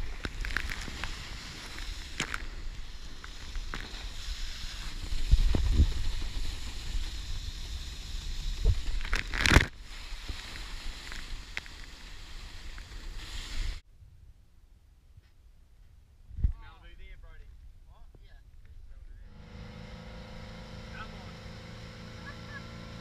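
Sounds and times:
wind buffeting microphone: 0:04.9 - 0:07.7.

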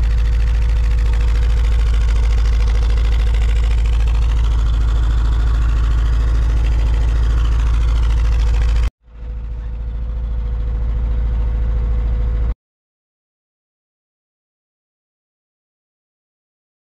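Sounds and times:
car engine idling: 0:00.0 - 0:12.6.

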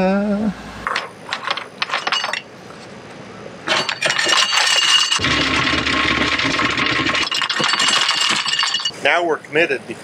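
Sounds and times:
anchor chain rattling: 0:01.3 - 0:02.5, 0:03.7 - 0:09.0
windlass motor whine: 0:05.2 - 0:08.4.

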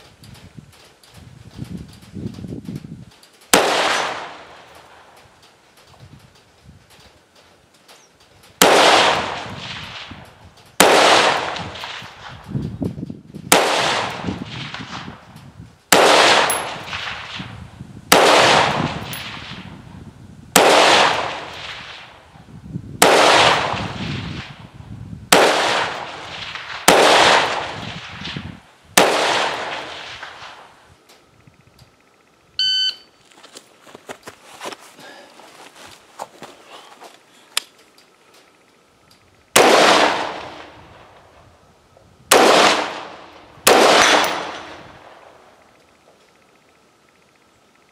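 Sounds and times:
rifle shots with echo: 0:03.5 - 0:05.2, 0:08.6 - 0:12.5, 0:13.5 - 0:15.2, 0:15.9 - 0:17.5, 0:18.1 - 0:19.7, 0:20.6 - 0:22.2, 0:23.0 - 0:24.7, 0:25.3 - 0:30.8, 0:39.5 - 0:41.4, 0:42.3 - 0:45.6.

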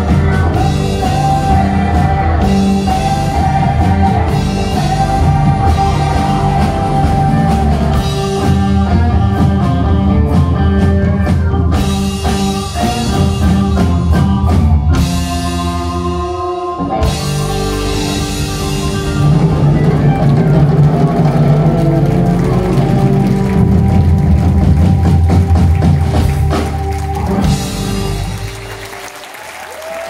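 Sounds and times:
bass guitar: 0:00.0 - 0:29.3
keyboard: 0:00.0 - 0:29.5
drum kit: 0:00.0 - 0:30.0
electric guitar: 0:00.0 - 0:30.0.

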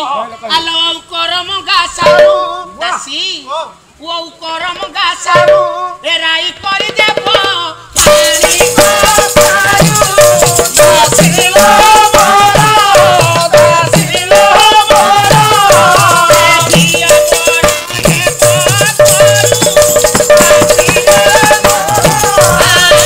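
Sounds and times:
singing melody: 0:00.0 - 0:23.0
drum strokes: 0:02.0 - 0:02.6, 0:05.2 - 0:05.9, 0:06.8 - 0:23.0
rattling hand percussion: 0:06.8 - 0:23.0.

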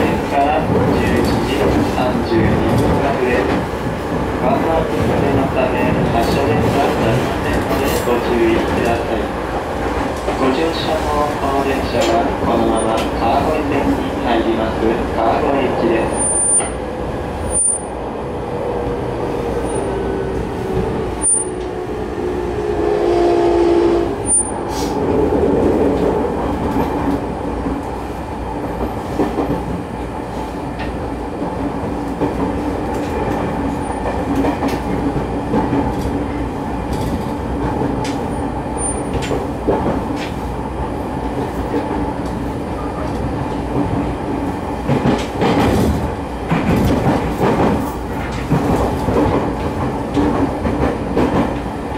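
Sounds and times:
rail-joint clicks: 0:04.7 - 0:09.2, 0:09.8 - 0:14.1, 0:20.7 - 0:21.8, 0:28.7 - 0:40.5, 0:44.8 - 0:51.9.

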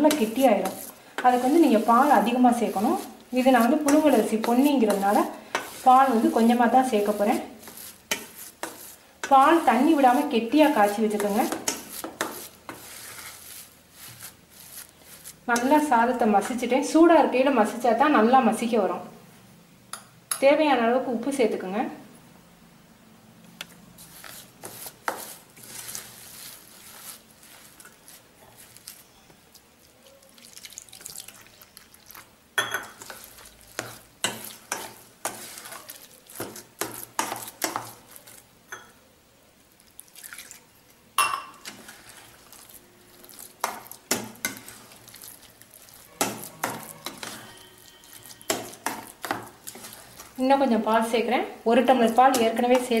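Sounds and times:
spatula scraping steel bowl: 0:00.0 - 0:16.7, 0:24.0 - 0:29.2, 0:32.9 - 0:38.4, 0:41.6 - 0:50.4, 0:52.1 - 0:53.0
wet stirring: 0:00.0 - 0:16.7, 0:23.6 - 0:39.0, 0:39.8 - 0:51.1, 0:51.9 - 0:53.0.

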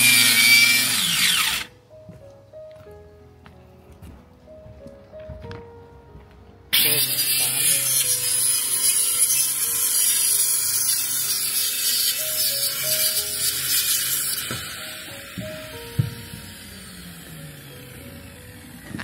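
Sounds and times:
electric saw cutting wood: 0:00.0 - 0:01.7, 0:06.7 - 0:19.0.

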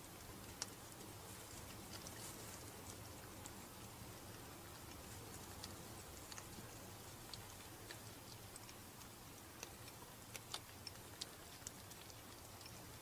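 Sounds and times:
low steady hiss: 0:00.0 - 0:13.0.

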